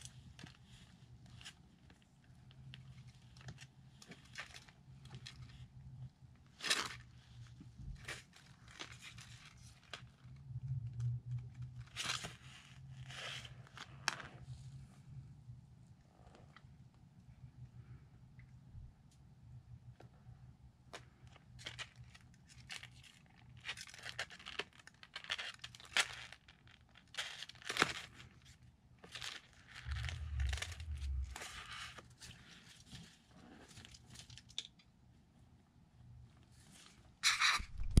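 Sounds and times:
scrape: 0:29.8 - 0:33.8, 0:36.5 - 0:37.8.

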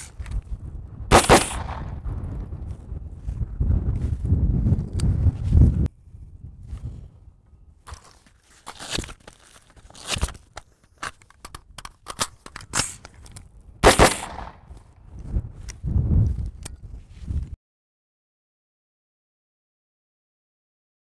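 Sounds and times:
wind buffeting microphone: 0:00.0 - 0:07.9, 0:12.6 - 0:17.6
nylon pouches scraping: 0:07.9 - 0:11.2.

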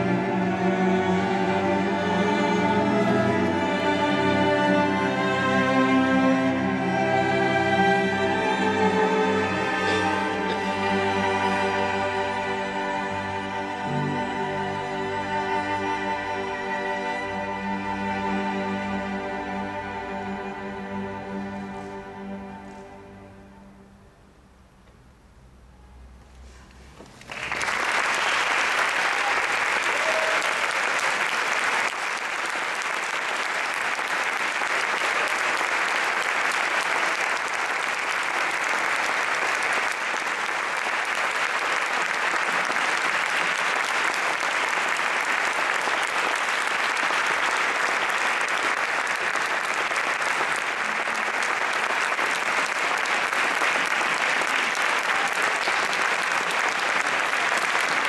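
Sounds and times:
audience applauding: 0:27.2 - 0:58.0.

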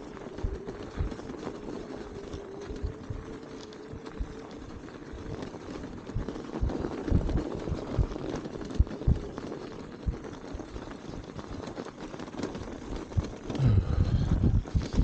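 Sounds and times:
low rumble: 0:00.0 - 0:11.6, 0:12.7 - 0:15.0
low thumps: 0:06.1 - 0:09.3.

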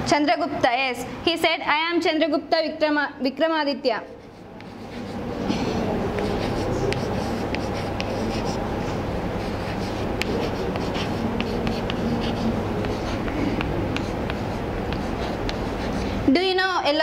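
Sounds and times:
low background hum: 0:00.0 - 0:17.0
chalk scratching on chalkboard: 0:04.1 - 0:16.2.

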